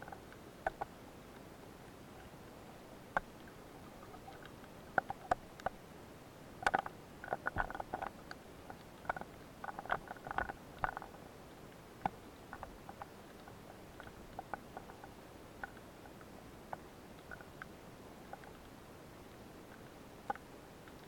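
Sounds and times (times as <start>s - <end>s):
underwater clicks and crackly knocks: 0.0s - 1.4s, 3.1s - 5.8s, 6.6s - 11.2s, 12.0s - 18.8s, 19.7s - 21.0s.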